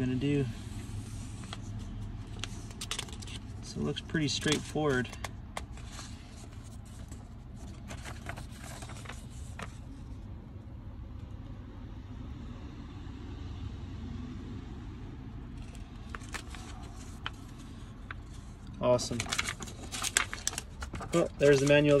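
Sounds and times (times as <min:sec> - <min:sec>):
paper pages rustling: 0:00.6 - 0:10.2, 0:15.6 - 0:22.0.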